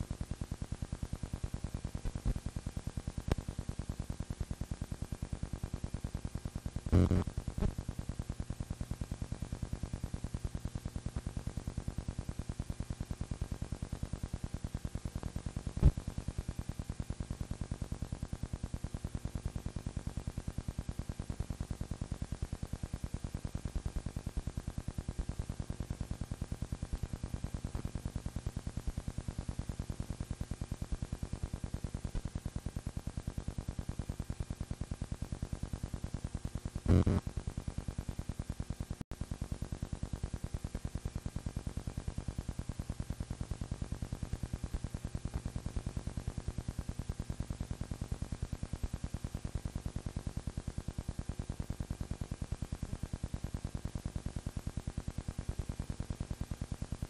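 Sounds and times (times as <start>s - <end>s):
low hum: 6.9s - 7.8s, 36.9s - 37.2s.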